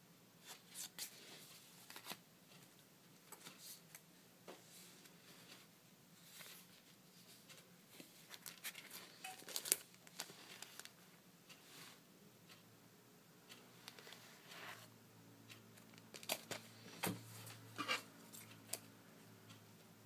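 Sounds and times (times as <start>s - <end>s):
plastic packet crinkling: 8.3s - 10.9s.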